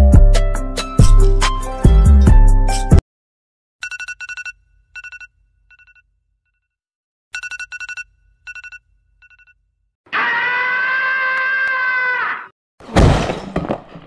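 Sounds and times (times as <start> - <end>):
cartoon alarm clock bell ringing: 3.8 - 6.0
cartoon cat scream: 10.1 - 12.5.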